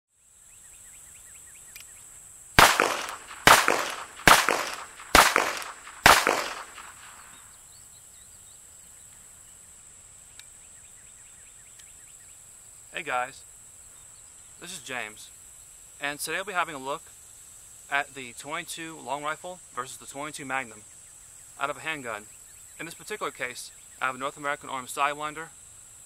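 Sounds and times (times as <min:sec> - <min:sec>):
high insect drone: 0:00.2 - 0:26.0
revolver shots: 0:02.6 - 0:07.3.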